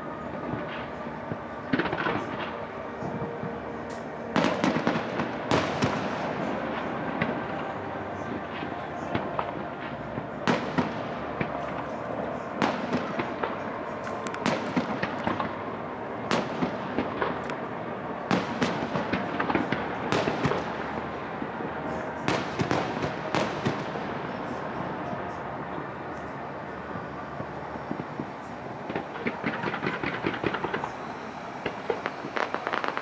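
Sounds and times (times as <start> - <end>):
fireworks bursting: 0.0 - 33.0
steady background noise: 0.0 - 33.0.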